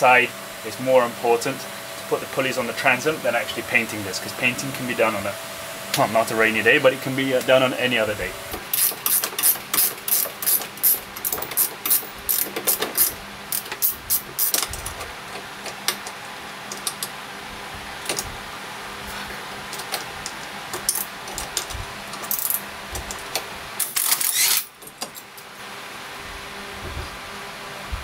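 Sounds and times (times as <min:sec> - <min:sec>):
cordless drill driving a bolt: 0:08.5 - 0:14.8, 0:23.8 - 0:24.7
ratcheting spanner clicking: 0:08.7 - 0:17.1, 0:19.7 - 0:25.2.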